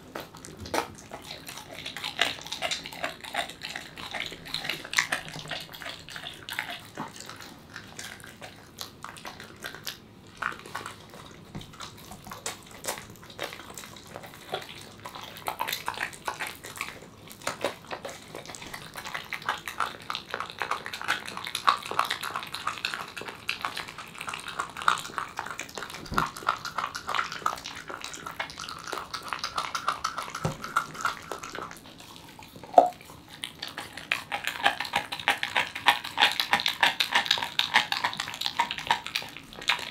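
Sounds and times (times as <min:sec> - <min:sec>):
dog chewing wet meat: 0:00.0 - 0:39.9
teeth clicking on bone: 0:00.0 - 0:39.9.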